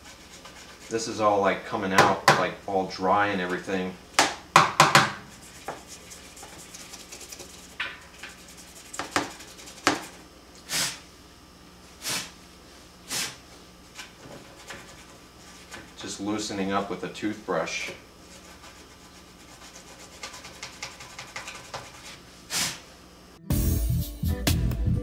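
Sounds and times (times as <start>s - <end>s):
toothbrush scrubbing: 0.0s - 1.1s, 5.3s - 11.0s, 18.3s - 22.2s.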